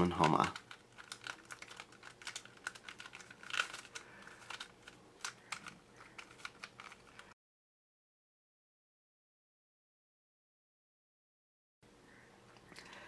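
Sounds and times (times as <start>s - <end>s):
puzzle layers clicking: 0.0s - 7.3s.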